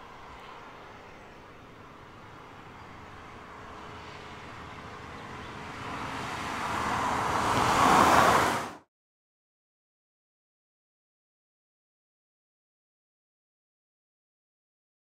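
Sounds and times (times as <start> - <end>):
car passing by: 0.0 - 8.9.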